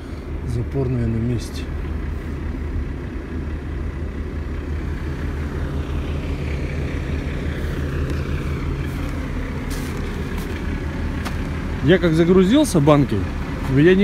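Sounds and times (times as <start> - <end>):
diesel truck engine idling: 0.0 - 14.0
footsteps crunching on snow: 7.6 - 11.6.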